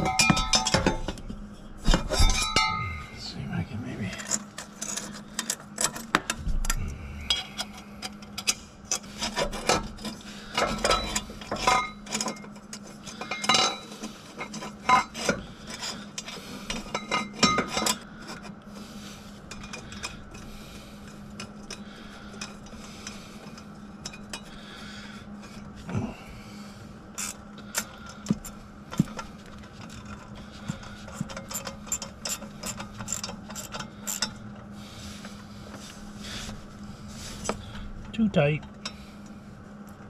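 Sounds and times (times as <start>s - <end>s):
metal clinks knocks and scraping: 0.0s - 3.1s, 4.1s - 18.5s, 27.2s - 34.4s.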